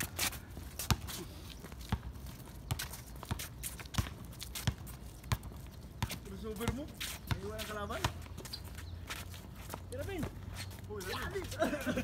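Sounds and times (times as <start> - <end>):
footsteps: 0.0 - 12.0
basketball bouncing on concrete: 0.8 - 1.2, 1.9 - 8.6.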